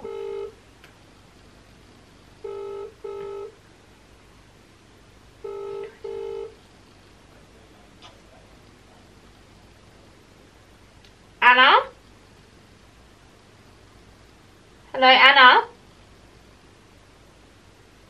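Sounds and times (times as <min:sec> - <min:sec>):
telephone ringback tone: 0:00.0 - 0:00.6, 0:02.4 - 0:03.6, 0:05.4 - 0:06.6
faint click: 0:11.0 - 0:11.2.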